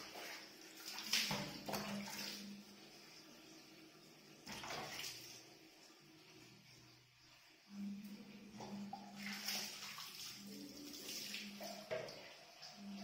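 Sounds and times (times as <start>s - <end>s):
water splashing from bucket: 0.0s - 2.6s, 4.4s - 5.4s, 8.6s - 12.3s.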